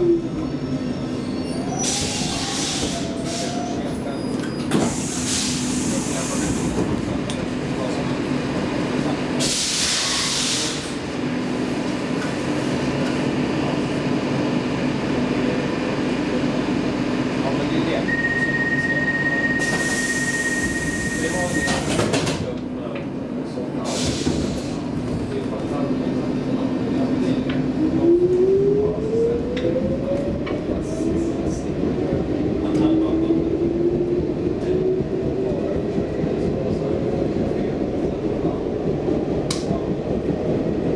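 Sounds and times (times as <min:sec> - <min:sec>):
train hum with low tone: 0:01.5 - 0:40.9
train running noise: 0:23.8 - 0:40.9.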